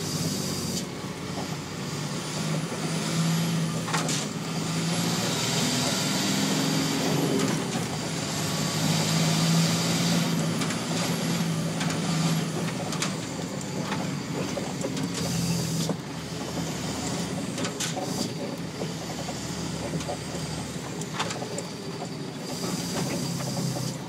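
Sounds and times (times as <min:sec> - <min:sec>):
diesel lorry engine running: 0:00.0 - 0:24.0.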